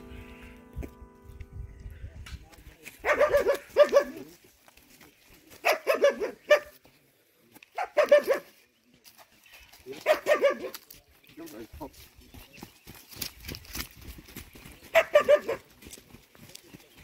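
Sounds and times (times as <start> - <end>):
dog barking: 3.0 - 4.3, 5.6 - 6.8, 7.8 - 8.6, 10.0 - 10.8, 14.9 - 15.7.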